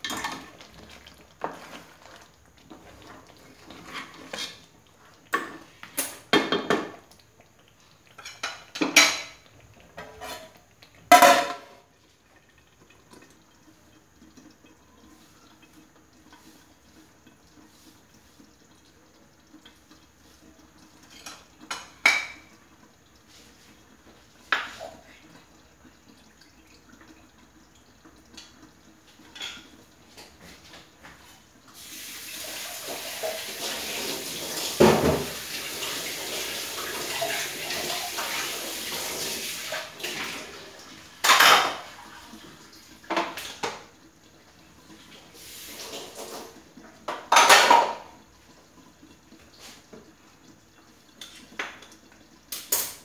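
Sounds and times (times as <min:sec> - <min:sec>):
water running: 0:00.0 - 0:53.0
metal pots and dishes clanking: 0:08.2 - 0:09.4, 0:10.0 - 0:11.8, 0:41.2 - 0:41.9, 0:47.1 - 0:48.1.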